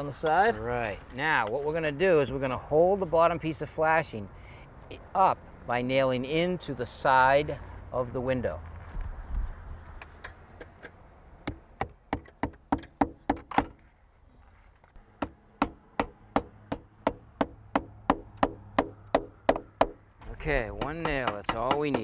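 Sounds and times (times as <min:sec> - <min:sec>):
hammer striking nail into metal: 0:11.4 - 0:13.8, 0:15.2 - 0:20.0, 0:20.7 - 0:22.0.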